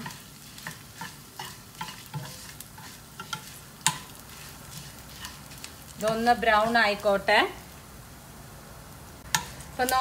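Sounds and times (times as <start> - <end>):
spoon scraping and tapping pan: 0.0 - 6.3, 9.2 - 9.6
faint frying sizzle: 0.0 - 10.0.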